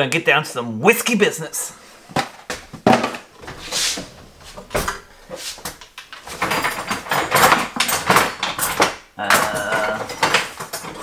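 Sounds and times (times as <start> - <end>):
drawer contents clattering: 2.1 - 11.0.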